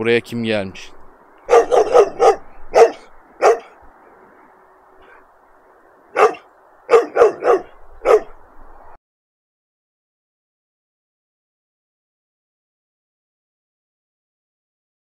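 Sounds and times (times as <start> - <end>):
dog barking: 1.5 - 3.8, 6.1 - 8.4.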